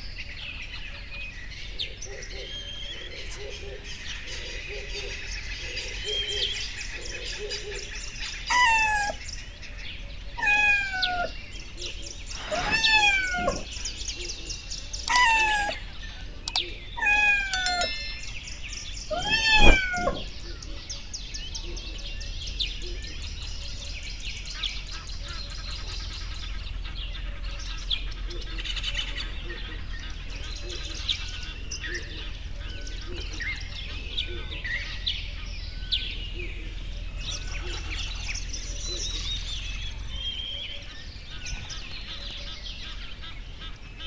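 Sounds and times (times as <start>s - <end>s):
cat meowing: 19.2s - 20.3s.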